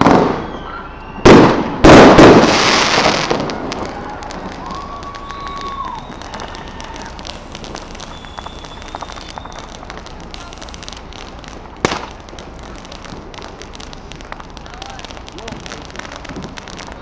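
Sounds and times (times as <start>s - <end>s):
firecrackers crackling and popping: 0.0s - 17.0s
faint high whistle: 0.4s - 1.8s, 4.7s - 9.9s
loud sharp bang: 1.2s - 3.8s.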